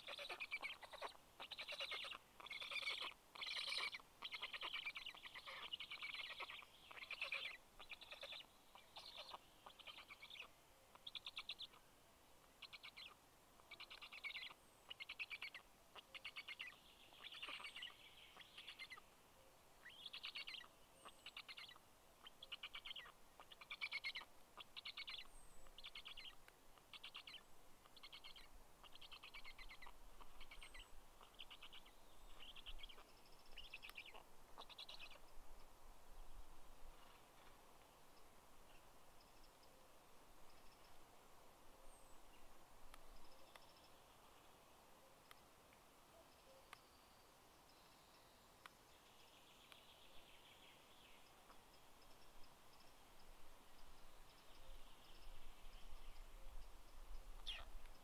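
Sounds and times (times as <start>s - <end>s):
nestlings rasping begging calls: 0.0s - 8.4s.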